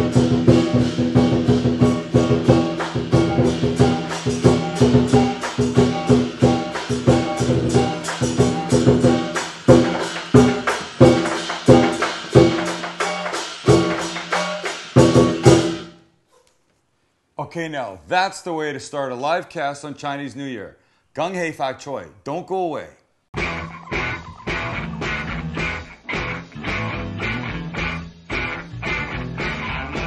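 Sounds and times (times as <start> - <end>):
clashing cymbals: 0.0 - 15.9
drum strikes: 0.0 - 16.0, 23.4 - 30.0.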